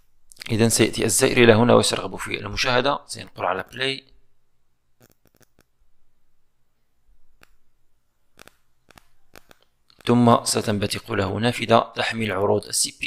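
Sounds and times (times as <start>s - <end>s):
computer mouse clicks: 5.0s - 5.7s, 8.4s - 10.1s.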